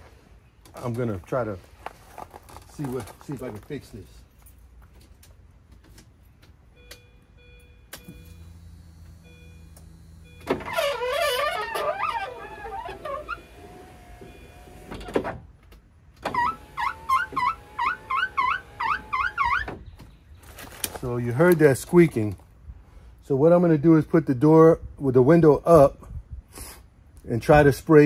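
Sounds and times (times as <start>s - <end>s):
power window motor whining: 8.0s - 15.1s, 16.2s - 19.7s
window glass squeaking on seal: 10.3s - 15.3s, 16.2s - 19.9s.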